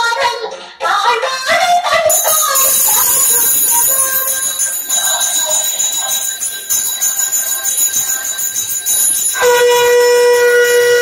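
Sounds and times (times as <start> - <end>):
hand bell ringing: 2.1 - 11.0
horn-like tone: 9.4 - 11.0.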